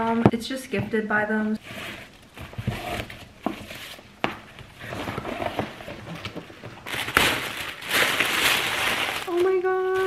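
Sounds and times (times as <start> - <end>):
box rustling: 1.8 - 10.0
tissue paper crinkling: 4.8 - 10.0.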